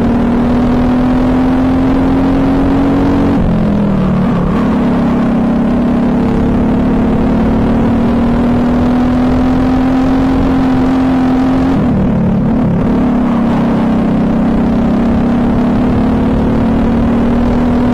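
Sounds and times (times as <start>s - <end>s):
kart engine accelerating: 0.0s - 17.9s.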